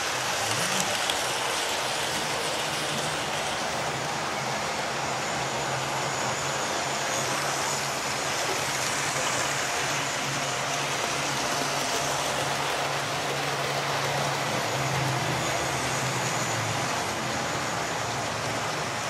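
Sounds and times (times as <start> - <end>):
wheels rolling on rails: 0.0 - 4.5
model train motors whirring: 0.0 - 19.0.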